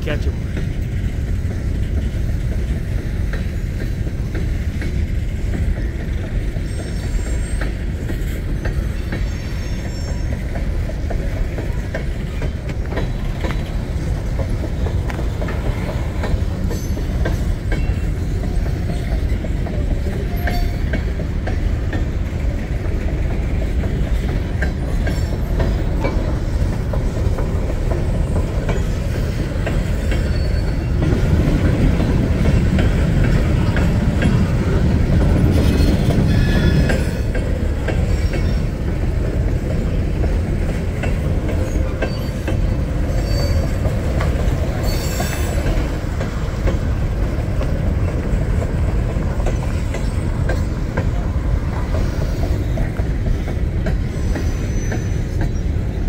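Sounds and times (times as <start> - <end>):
train cars rumbling: 0.0 - 56.0
wheels clanking over rail joints: 0.1 - 56.0
high wheel squeal: 6.6 - 10.6, 16.6 - 19.5, 29.9 - 31.0, 35.5 - 37.2, 41.6 - 43.9, 44.8 - 45.7, 54.1 - 56.0.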